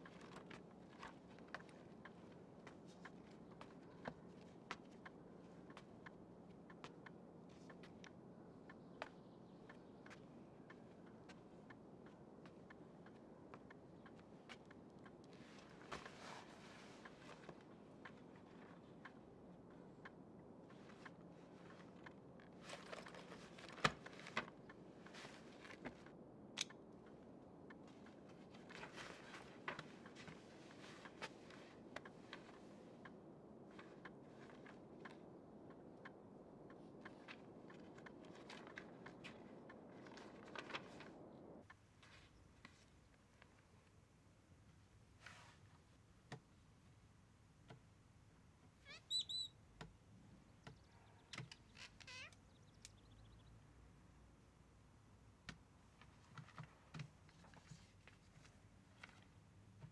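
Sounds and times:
soft rustling on a sofa: 0:15.3 - 0:18.8
high chirps and rising squeaks: 0:48.9 - 0:49.5.

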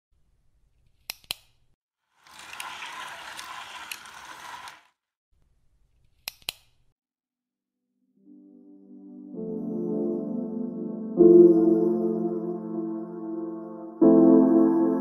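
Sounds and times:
whirring ratchet: 0:02.2 - 0:04.9.

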